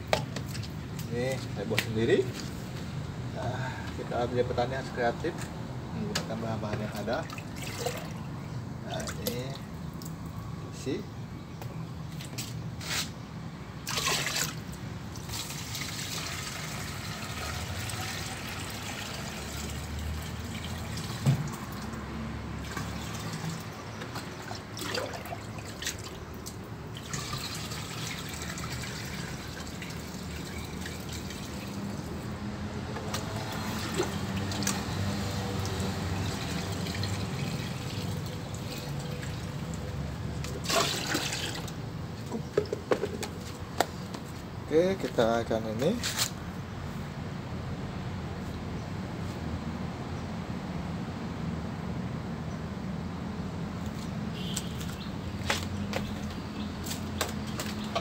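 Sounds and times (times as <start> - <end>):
liquid splashing and trickling: 0.0 - 1.6, 6.8 - 10.4, 13.8 - 22.0, 22.6 - 32.4, 33.0 - 41.8
bucket and stick knocks: 42.5 - 43.9.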